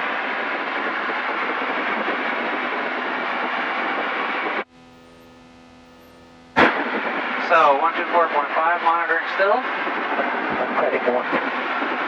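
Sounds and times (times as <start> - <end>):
aircraft engine and wind noise: 0.0 - 12.0
faint electrical buzz: 4.6 - 7.6.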